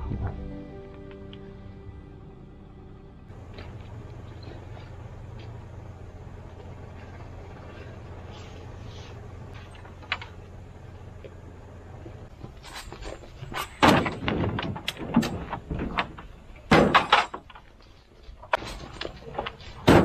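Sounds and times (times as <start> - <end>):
low hum: 0.0 - 20.0
crate and mushrooms hitting metal: 13.5 - 17.6, 19.8 - 20.0.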